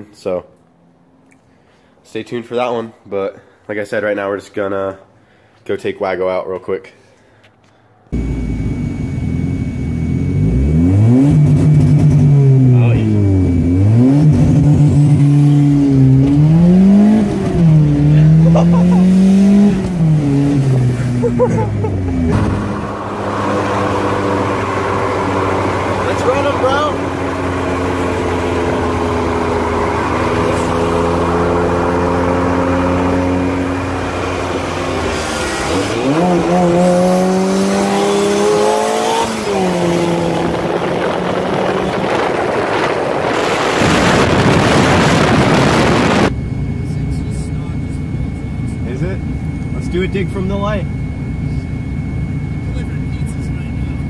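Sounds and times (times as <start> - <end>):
car engine revving from cabin: 8.2 - 46.3
wind and road noise: 11.1 - 46.4.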